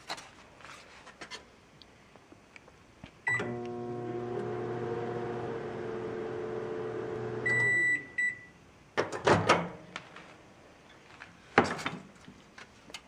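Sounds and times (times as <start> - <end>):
microwave oven humming: 3.3 - 8.2
high beep: 7.4 - 8.6.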